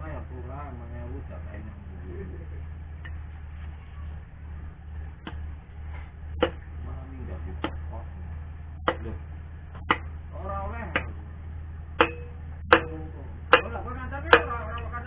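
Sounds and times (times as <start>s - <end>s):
steady low hum: 0.0s - 15.0s
hammer tapping metal: 6.4s - 6.6s, 7.6s - 7.8s, 8.8s - 9.2s, 9.8s - 10.2s, 10.9s - 11.2s, 12.0s - 14.9s.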